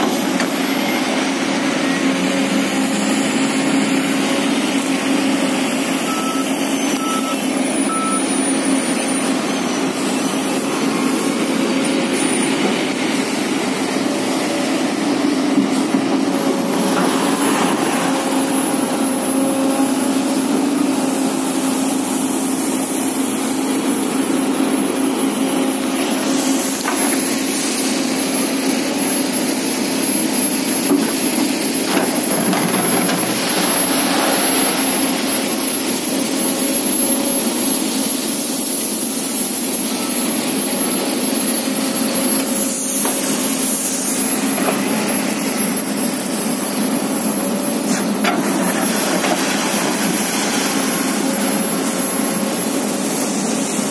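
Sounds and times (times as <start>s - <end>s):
diesel engine droning: 0.0s - 26.8s.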